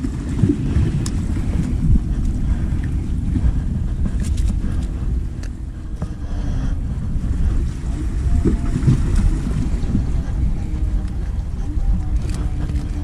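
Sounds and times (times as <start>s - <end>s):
wind buffeting microphone: 0.0s - 13.0s
light clicks of gear handled: 4.2s - 5.6s, 10.8s - 13.0s.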